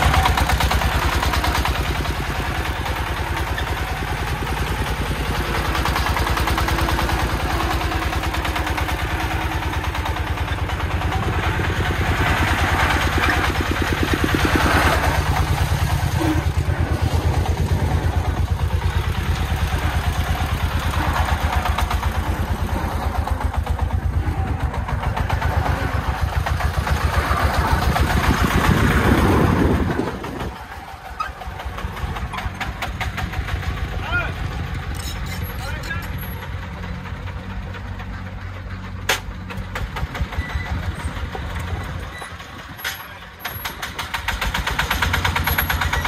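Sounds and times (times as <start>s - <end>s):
diesel engine chugging under load: 0.0s - 46.0s.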